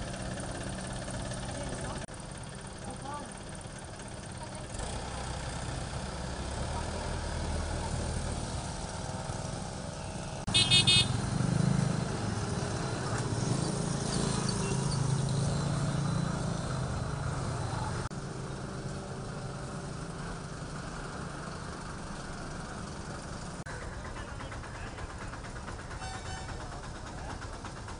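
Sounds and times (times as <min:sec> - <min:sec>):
road traffic engines: 0:00.0 - 0:27.9
horn short high blasts: 0:10.5 - 0:11.2, 0:26.0 - 0:26.6.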